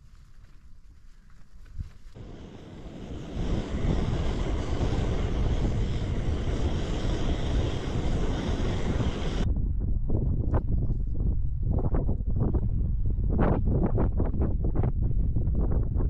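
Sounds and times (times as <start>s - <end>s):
wind rumbling on microphone: 0.0s - 16.0s
gas stove hissing: 2.2s - 9.5s.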